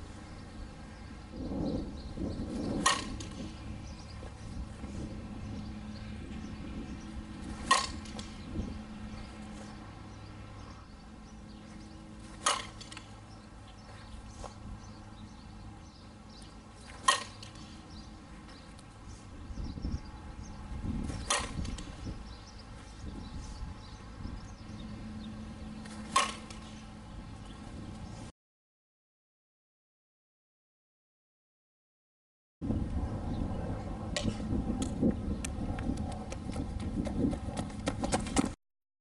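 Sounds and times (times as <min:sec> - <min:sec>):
faint outdoor background: 0:00.0 - 0:28.3, 0:32.6 - 0:38.6
bat cracking ball: 0:02.6 - 0:03.6, 0:07.4 - 0:08.4, 0:12.2 - 0:13.2, 0:16.9 - 0:17.9, 0:21.0 - 0:22.0, 0:25.8 - 0:26.8.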